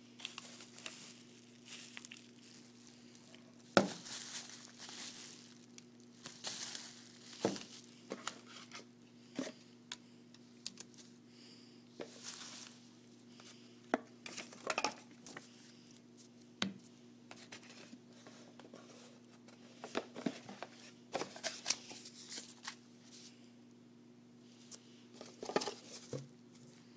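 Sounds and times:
faint low hum: 0:00.0 - 0:26.9
paper leaflets rustling: 0:00.2 - 0:08.8, 0:12.1 - 0:12.8
plastic packaging crinkling: 0:00.2 - 0:08.8, 0:12.1 - 0:12.9.

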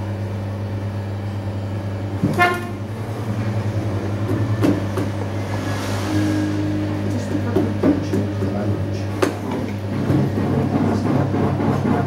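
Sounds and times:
potter's wheel motor humming: 0:00.0 - 0:12.0
high-pitched horn-like toot: 0:02.3 - 0:02.8.

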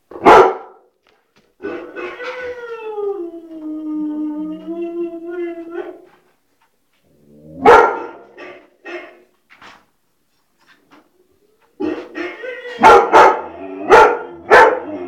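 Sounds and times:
dog barking: 0:00.1 - 0:00.9, 0:07.6 - 0:09.3, 0:11.8 - 0:15.0.

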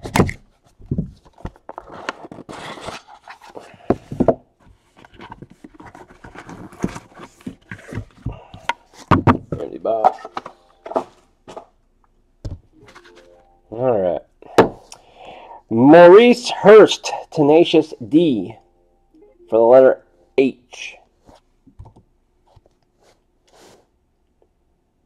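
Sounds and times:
packs knocking when set down: 0:09.0 - 0:11.7.

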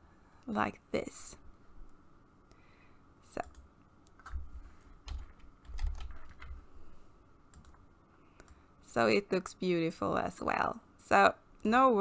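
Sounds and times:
keyboard typing: 0:03.4 - 0:06.6, 0:07.5 - 0:07.8.

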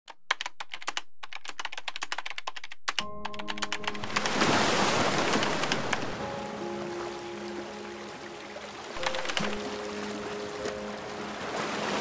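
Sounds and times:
keyboard typing clicks: 0:00.1 - 0:04.4, 0:05.2 - 0:06.1, 0:09.0 - 0:09.7
music with long held notes: 0:06.2 - 0:12.0.

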